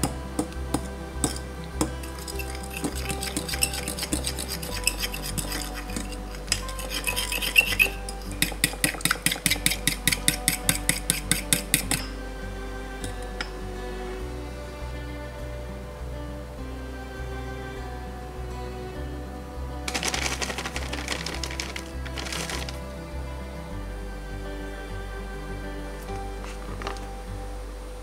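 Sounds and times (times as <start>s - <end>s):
fork whisking in ceramic bowl: 2.0s - 12.1s.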